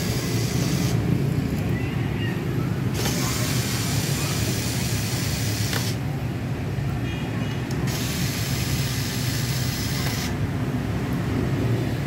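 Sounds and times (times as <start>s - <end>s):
electric screwdriver whirring: 0.0s - 1.1s, 2.9s - 6.0s, 7.8s - 10.4s.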